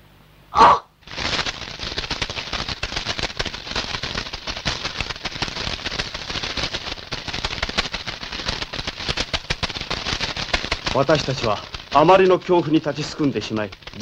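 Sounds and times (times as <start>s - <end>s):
dense crackle of rapid clicks: 1.0s - 14.0s.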